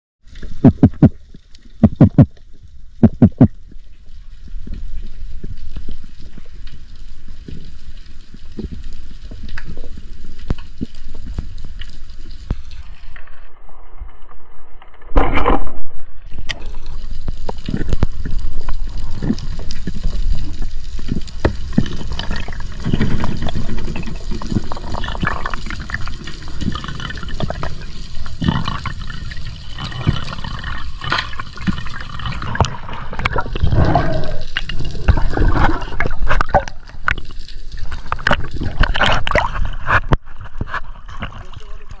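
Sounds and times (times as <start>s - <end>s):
underwater water rushing: 0.2s - 42.0s.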